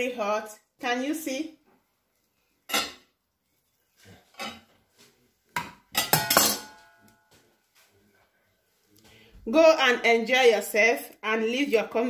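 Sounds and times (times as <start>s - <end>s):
metal spatula clinking on dishes: 2.7s - 3.0s, 4.4s - 4.7s, 5.9s - 7.2s.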